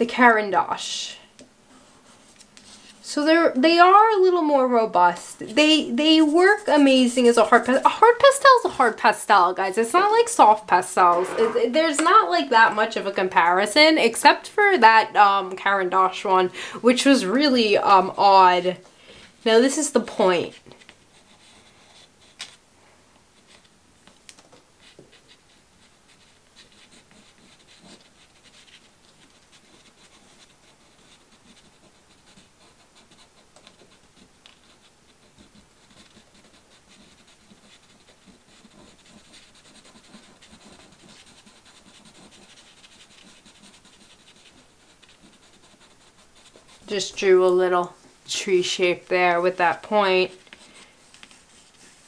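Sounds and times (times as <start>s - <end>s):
pastel scratching on paper: 5.4s - 8.9s, 10.0s - 12.2s, 19.8s - 22.4s, 24.8s - 47.2s, 49.6s - 52.0s.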